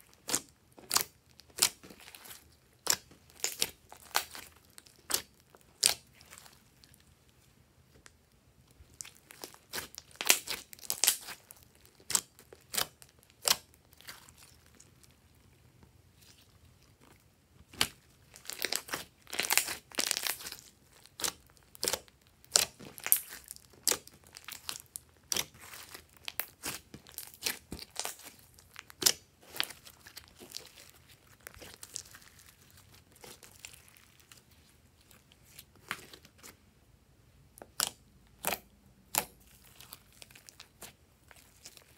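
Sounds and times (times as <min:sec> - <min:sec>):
slime crackling and popping: 0:00.0 - 0:07.0, 0:08.8 - 0:15.2, 0:17.6 - 0:36.5, 0:37.6 - 0:41.9.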